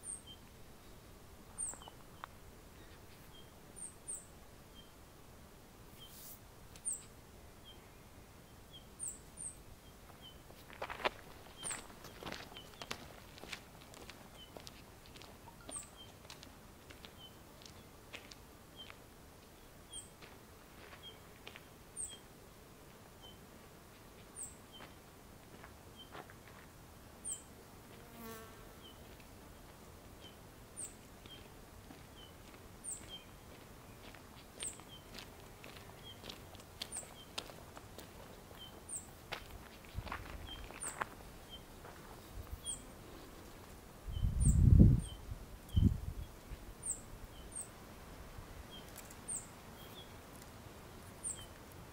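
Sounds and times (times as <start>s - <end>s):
fledgling bird begging chirps: 15.4s - 16.1s
insect buzzing past: 27.2s - 29.7s.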